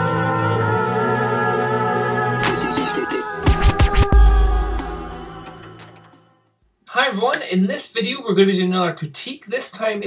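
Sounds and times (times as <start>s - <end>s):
electronic music: 2.4s - 6.2s.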